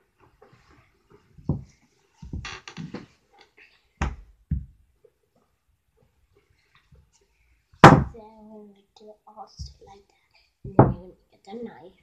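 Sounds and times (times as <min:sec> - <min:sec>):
objects scuffing and rattling: 0:00.2 - 0:03.2.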